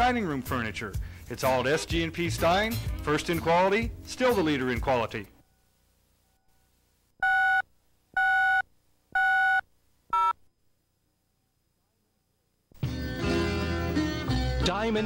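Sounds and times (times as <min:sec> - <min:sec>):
electronic countdown beeps: 0:08.2 - 0:08.6.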